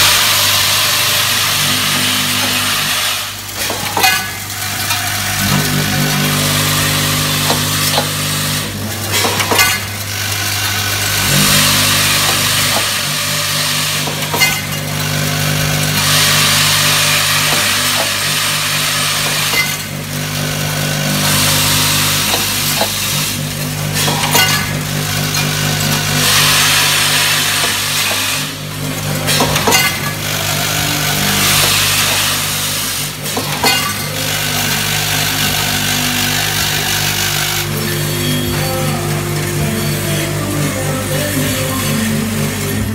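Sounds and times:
vibratory bowl feeder humming: 0.0s - 42.9s.

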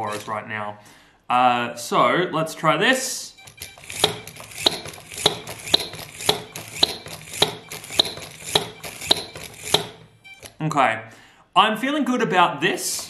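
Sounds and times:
toy squeaky hammer hitting tabletop: 3.4s - 10.6s.

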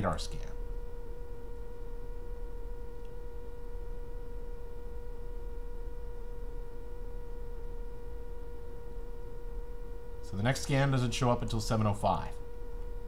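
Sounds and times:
steady electrical hum: 0.0s - 13.0s.

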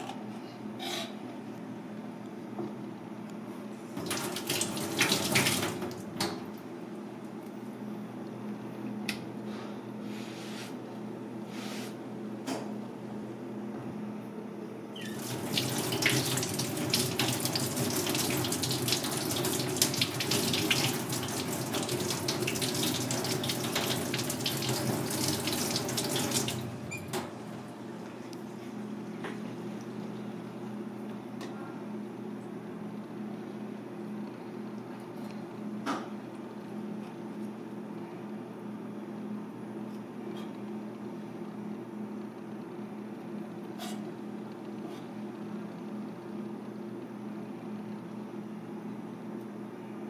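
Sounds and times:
tap water running into a sink: 4.0s - 6.4s, 15.0s - 27.3s
short scraping sounds: 11.5s - 12.0s.

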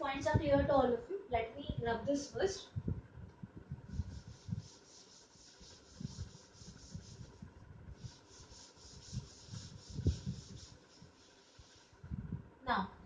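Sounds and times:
cloth wiping chalkboard: 3.9s - 12.0s.

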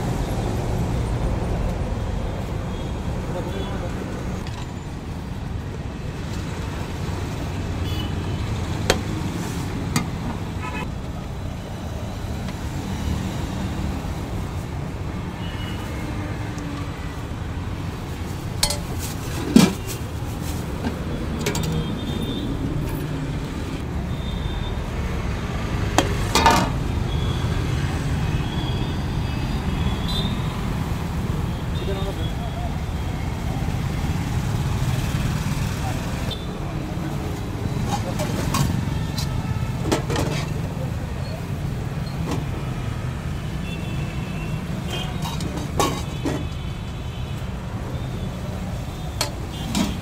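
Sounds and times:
road traffic rumble: 0.0s - 50.0s
metal spoons clinking on pots: 18.6s - 18.9s, 45.1s - 46.2s.

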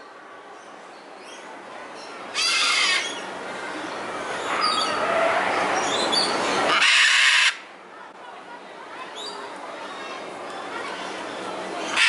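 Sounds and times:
macaw screaming: 2.4s - 3.2s, 6.7s - 7.6s.

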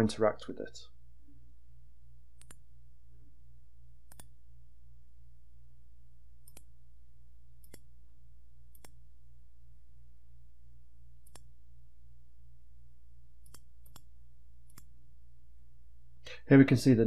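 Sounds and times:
low electrical hum: 0.0s - 17.0s
computer mouse clicks: 2.4s - 2.6s, 4.1s - 4.4s, 6.4s - 6.7s, 7.6s - 7.9s, 8.7s - 9.0s, 11.2s - 11.5s, 13.4s - 14.9s.

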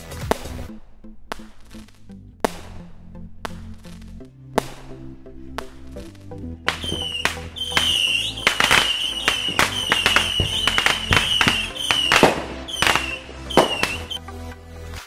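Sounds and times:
firework bangs and crackles: 0.0s - 14.2s
music with steady bass: 0.0s - 15.0s
high whistling tone: 6.7s - 14.2s.

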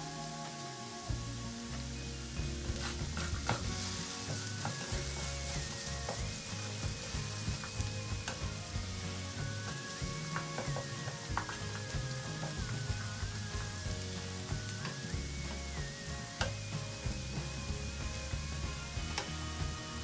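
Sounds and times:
potatoes sizzling in oil: 0.0s - 20.0s
wooden spatula scraping pan: 2.5s - 15.0s.

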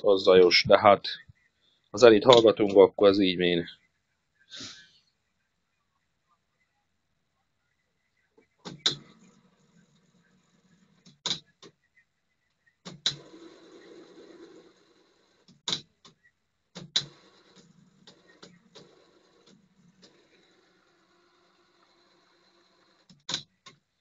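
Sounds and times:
tape mechanism whirring: 12.8s - 15.9s, 16.8s - 23.8s.

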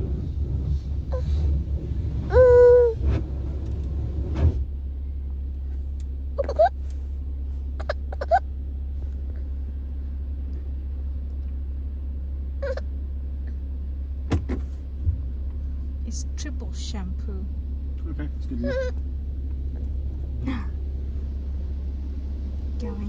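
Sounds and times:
car engine idling: 0.0s - 23.0s
baby whimpering: 2.3s - 3.0s, 6.4s - 6.7s, 7.8s - 8.4s, 12.6s - 12.8s, 18.6s - 19.0s.

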